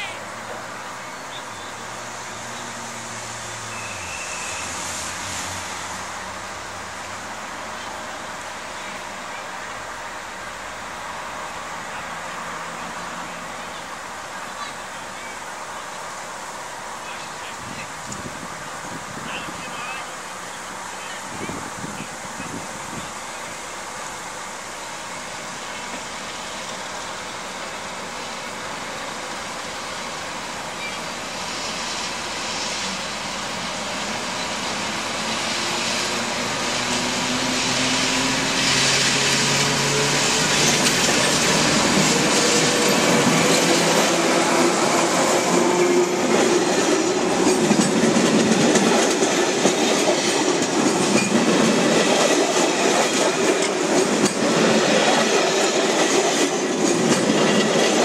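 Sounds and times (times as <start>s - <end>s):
diesel locomotive engine accelerating: 0.0s - 58.0s
train wheels clattering over rails: 25.8s - 58.0s.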